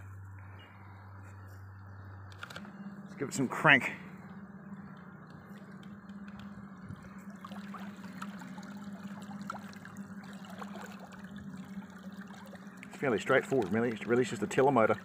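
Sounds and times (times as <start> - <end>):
electric motor humming: 0.2 - 15.0
water trickling and splashing: 4.6 - 15.0.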